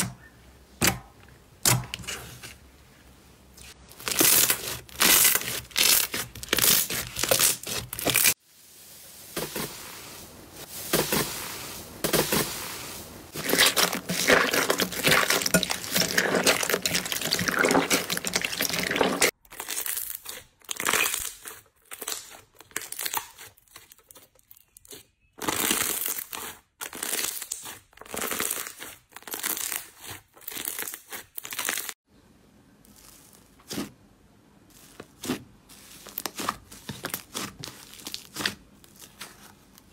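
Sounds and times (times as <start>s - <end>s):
sticky slime crackles and pops: 36.1s - 39.9s.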